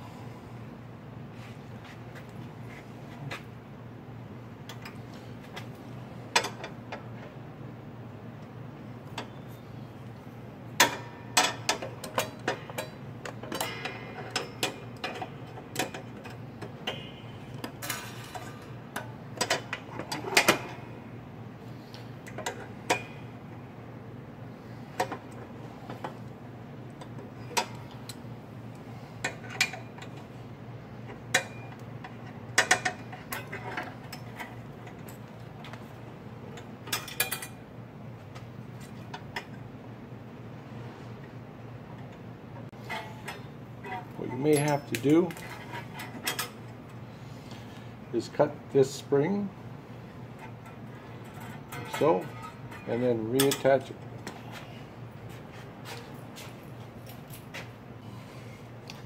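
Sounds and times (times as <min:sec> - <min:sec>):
steady low hum: 0:00.0 - 0:59.0
metallic clicks and clanks: 0:31.3 - 0:35.9, 0:42.0 - 0:46.8, 0:50.3 - 0:54.4.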